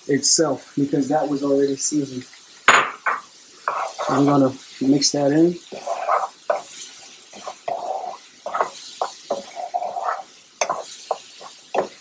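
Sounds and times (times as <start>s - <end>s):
vegetables sizzling: 0.0s - 12.0s
utensil scraping frying pan: 2.8s - 12.0s.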